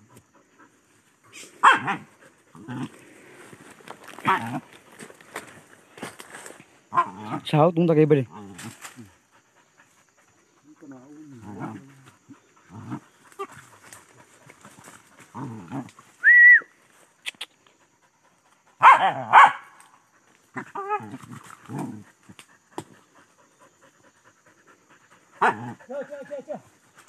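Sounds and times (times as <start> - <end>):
dogs barking and whining: 0.0 - 3.0, 4.0 - 4.8, 6.9 - 7.5, 18.8 - 19.8, 20.5 - 27.0
high-pitched dog yelp: 1.6 - 2.1, 18.8 - 19.8.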